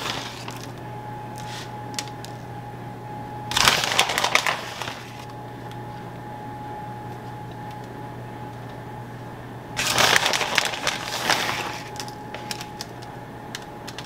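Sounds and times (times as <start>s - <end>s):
crinkly rustling of cheese: 0.0s - 0.8s, 3.5s - 5.3s, 9.8s - 13.0s.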